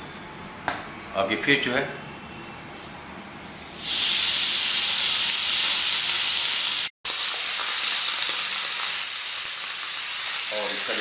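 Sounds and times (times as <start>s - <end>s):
fish sizzling in hot pan: 3.6s - 11.0s.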